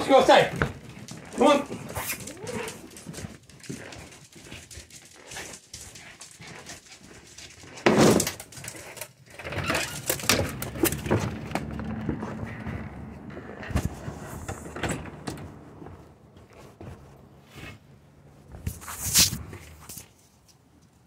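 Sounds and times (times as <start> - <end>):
dog whimpering: 2.1 - 3.0.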